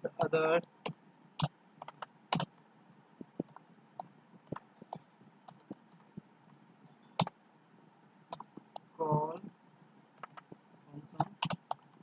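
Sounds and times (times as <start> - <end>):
keyboard typing: 0.1 - 2.6, 3.2 - 6.2, 6.9 - 7.4, 8.3 - 8.9, 10.1 - 12.0.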